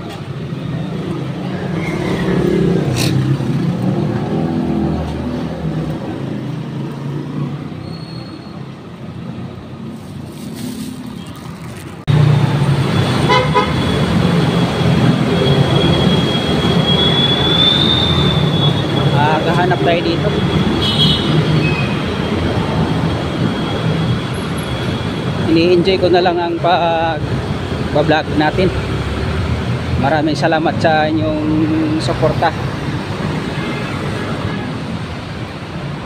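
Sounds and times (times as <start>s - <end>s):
vehicles passing with engine rumble: 0.0s - 36.0s
car horn toot: 13.3s - 13.9s, 20.8s - 21.4s.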